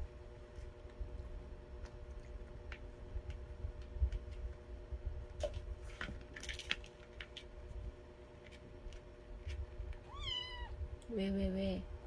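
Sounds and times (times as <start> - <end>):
kitten meow: 10.1 - 10.8.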